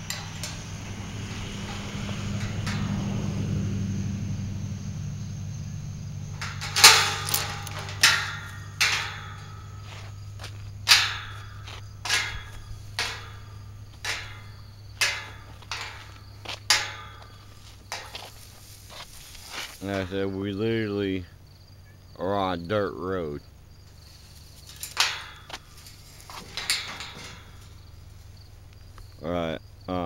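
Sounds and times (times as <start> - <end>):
low steady hum: 0.0 - 20.5
footsteps crunching through dry leaves: 15.5 - 20.0.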